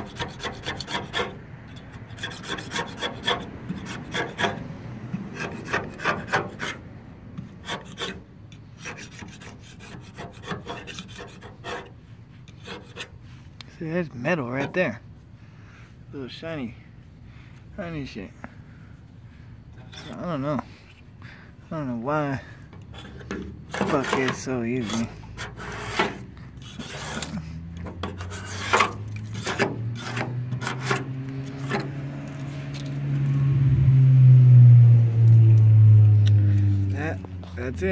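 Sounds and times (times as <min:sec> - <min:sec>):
blade scraping paint off metal: 0:00.0 - 0:04.6, 0:05.2 - 0:06.8, 0:07.4 - 0:13.2, 0:22.8 - 0:32.9.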